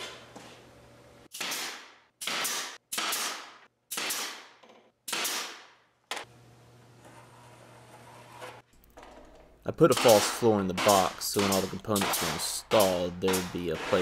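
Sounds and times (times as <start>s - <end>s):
nail gun shots with hiss: 1.3s - 5.7s, 9.9s - 14.0s.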